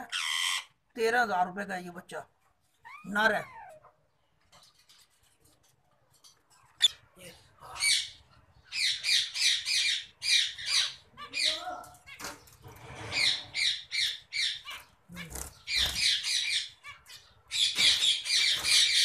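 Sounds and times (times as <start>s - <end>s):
parrots squawking: 0.0s - 0.9s, 7.8s - 12.4s, 13.0s - 19.0s.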